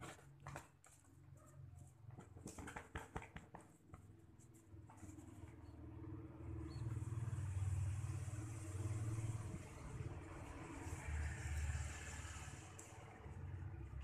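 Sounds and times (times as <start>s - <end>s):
vehicle engine hum with hiss: 4.2s - 14.0s.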